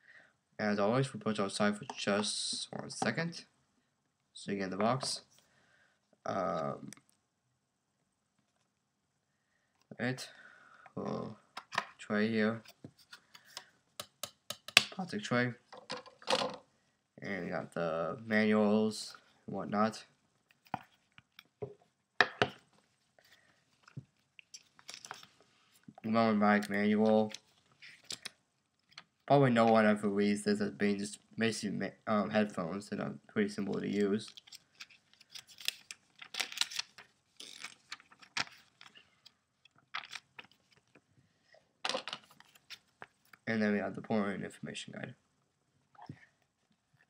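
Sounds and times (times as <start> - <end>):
paper crinkle: 34.2 - 39.0.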